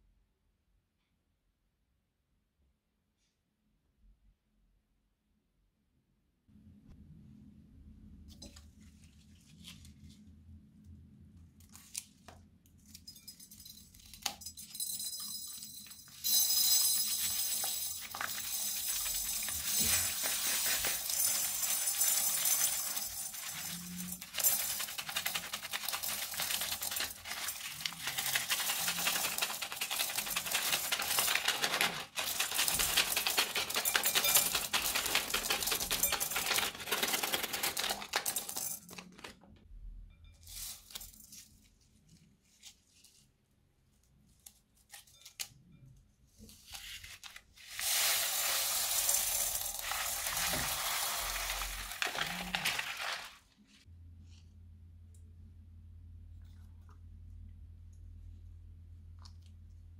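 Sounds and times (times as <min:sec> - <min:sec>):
plastic beads rattling into a bowl: 0:13.3 - 0:39.3, 0:47.7 - 0:53.5.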